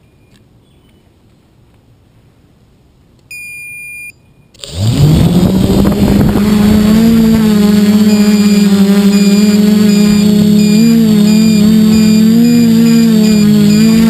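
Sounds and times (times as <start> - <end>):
electronic beep: 3.3 - 4.6, 8.1 - 14.0
quadcopter motors droning: 4.6 - 14.0.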